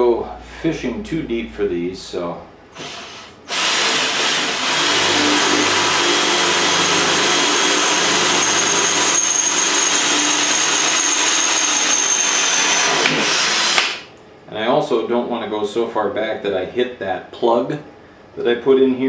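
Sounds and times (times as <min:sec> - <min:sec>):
cordless drill boring through steel: 0:02.8 - 0:14.0.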